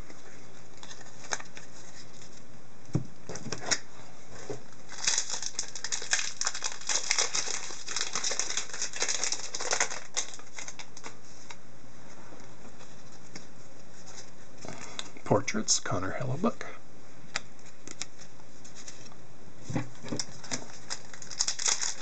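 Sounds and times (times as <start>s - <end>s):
plastic wrapper crinkling: 0.8s - 2.3s, 4.9s - 11.6s, 20.2s - 22.0s.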